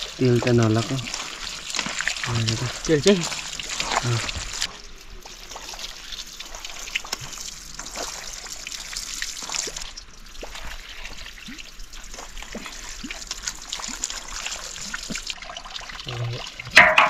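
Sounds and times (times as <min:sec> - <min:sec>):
water drips plinking: 0:00.0 - 0:17.0
water splashing into a metal bowl: 0:00.0 - 0:17.0.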